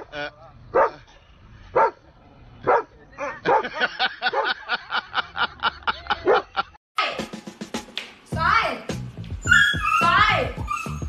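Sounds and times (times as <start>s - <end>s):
dog barking: 0.7s - 1.0s, 1.7s - 2.0s, 2.6s - 4.6s, 6.2s - 6.5s.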